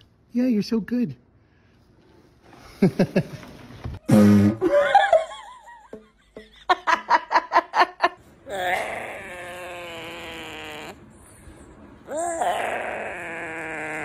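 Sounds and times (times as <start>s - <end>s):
person laughing: 2.7s - 3.4s, 4.1s - 8.2s.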